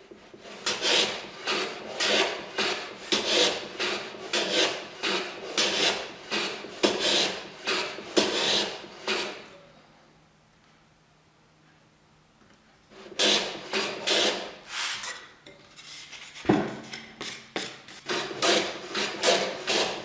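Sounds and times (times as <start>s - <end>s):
hand plane shaving wood: 0.3s - 9.5s, 12.9s - 15.0s, 17.2s - 20.0s.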